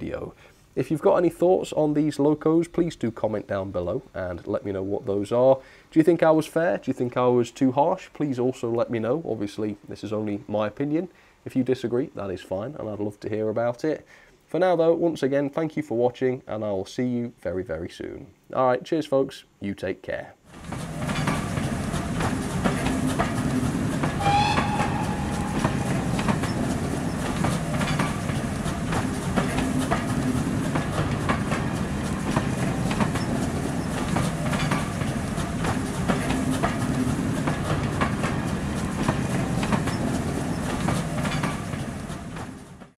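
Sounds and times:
train rumbling past: 20.5s - 42.9s
train wheels clicking on rail joints: 20.5s - 42.9s
high squeal of train: 20.6s - 42.9s.

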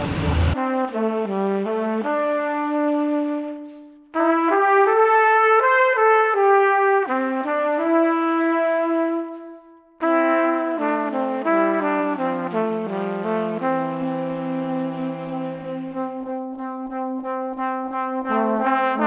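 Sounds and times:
background music melody: 10.6s - 19.0s.

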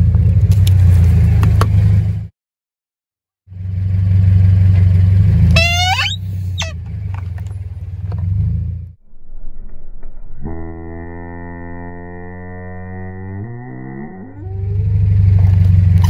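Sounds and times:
car engine rumbling: 0.0s - 2.3s, 3.5s - 13.3s, 14.3s - 16.0s
toy horn toot: 5.5s - 6.8s.

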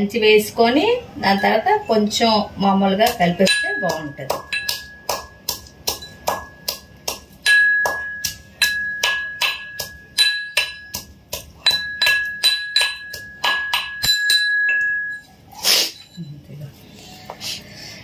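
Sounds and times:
metal pestle pounding in mortar: 3.0s - 15.2s.

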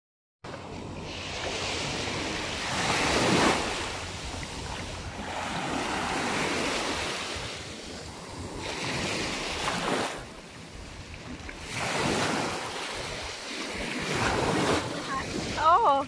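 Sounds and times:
small waves washing onto sand: 0.5s - 16.0s.

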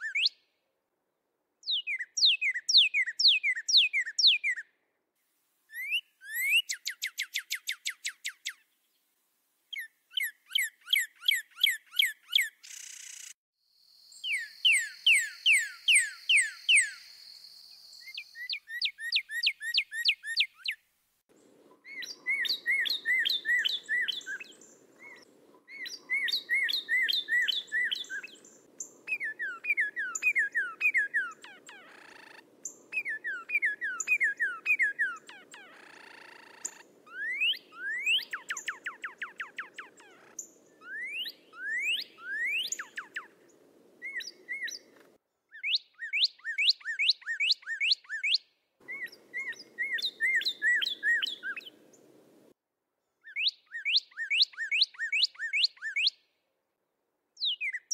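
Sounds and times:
cardinal whistled song: 0.0s - 0.5s, 1.6s - 4.6s, 5.7s - 8.6s, 14.1s - 20.8s, 21.8s - 31.5s, 32.9s - 35.3s, 36.6s - 39.9s, 40.7s - 43.4s, 44.0s - 44.8s, 45.6s - 51.8s, 53.3s - 56.2s.

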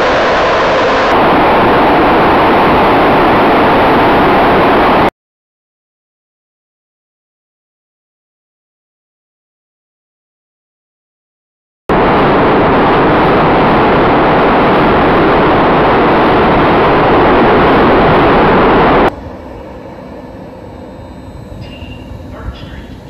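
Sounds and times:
loud rushing noise: 0.0s - 5.1s, 11.9s - 23.0s
underground station hum: 0.0s - 5.1s, 11.9s - 23.0s.

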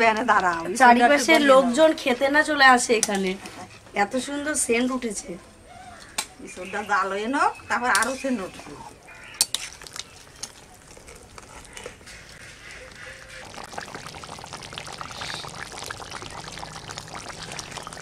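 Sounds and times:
curry bubbling in a pot: 8.3s - 18.0s.

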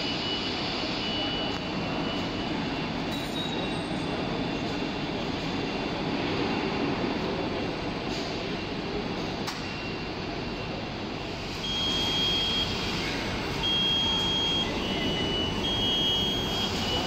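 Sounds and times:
warehouse machinery noise: 0.0s - 17.0s
robot warning beeper tones: 11.6s - 17.0s.

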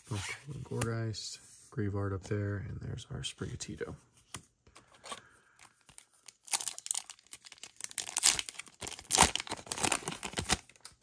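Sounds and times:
wrapper being torn and crinkled: 6.2s - 10.9s.

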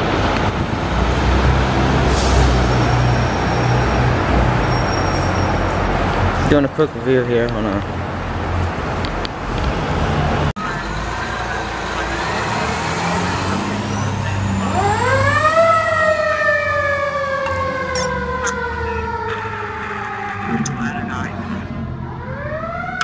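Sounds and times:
vehicle and street rumble: 0.0s - 23.0s
emergency vehicle siren wailing: 10.6s - 23.0s.

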